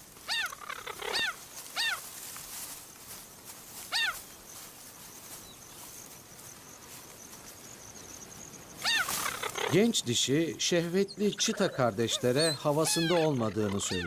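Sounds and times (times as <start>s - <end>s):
cheetah chirping: 0.3s - 2.0s, 7.7s - 14.0s.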